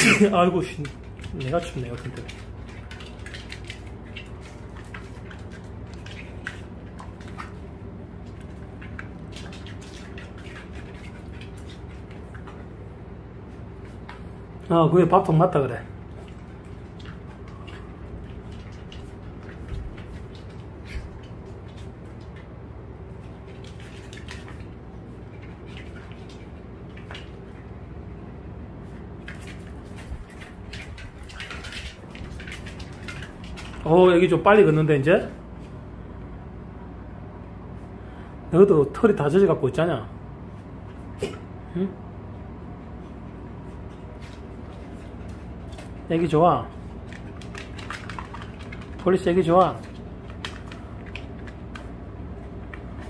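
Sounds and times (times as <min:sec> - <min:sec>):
steady low hum: 0:00.0 - 0:53.0
dog claws clicking on vinyl floor: 0:00.6 - 0:12.8, 0:16.2 - 0:22.5, 0:23.1 - 0:27.6, 0:29.2 - 0:34.7, 0:43.8 - 0:53.0.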